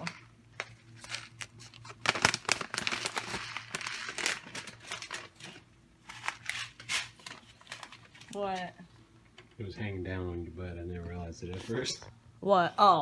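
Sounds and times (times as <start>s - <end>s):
foil pouch crinkling: 0.0s - 8.4s.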